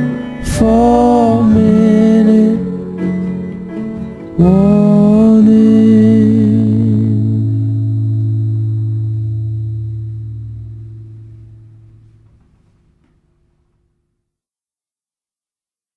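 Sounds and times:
pop song chord ringing out: 0.0 - 12.3
sung note with vibrato: 0.0 - 13.1.

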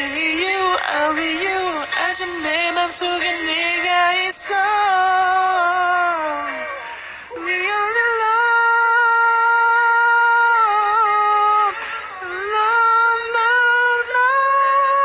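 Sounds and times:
person singing ballad high voice: 0.0 - 15.0.

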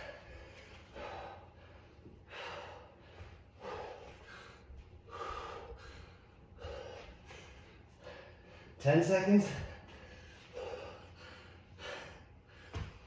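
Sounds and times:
man breathing hard: 0.0 - 13.0.

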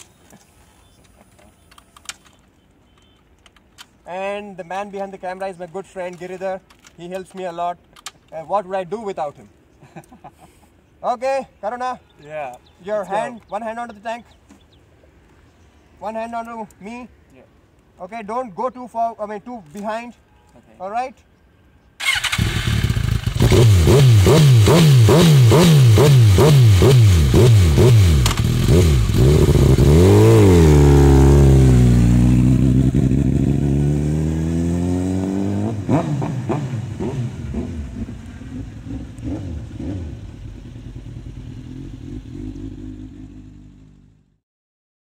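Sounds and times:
motorcycle engine revving: 22.0 - 44.3.

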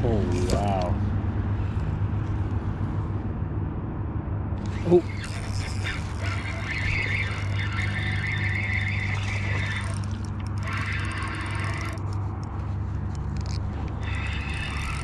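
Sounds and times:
fishing reel whirring: 4.6 - 15.0
quick clicks: 4.6 - 15.0.

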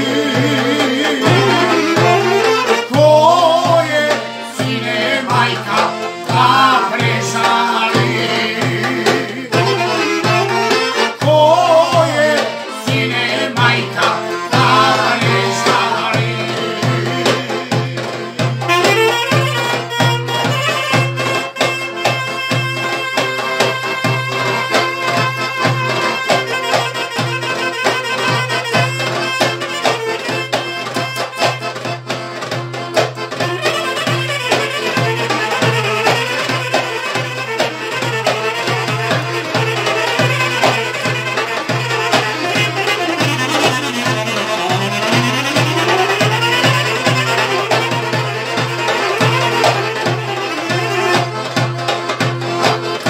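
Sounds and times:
person singing: 0.0 - 19.7, 39.7 - 51.3
folk band music: 0.0 - 53.0.

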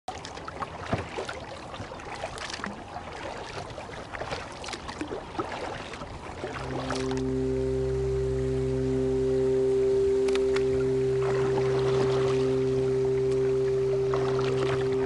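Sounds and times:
small splashes and drips: 0.1 - 7.2, 13.3 - 14.9
paddle dipping in water: 0.1 - 7.9, 10.4 - 15.0
water lapping at hull: 0.1 - 15.0.

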